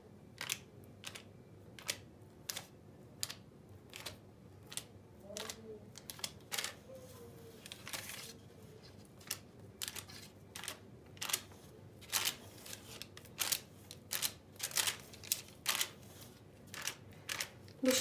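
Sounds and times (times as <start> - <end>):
baking paper rustling and crinkling: 3.9 - 18.0.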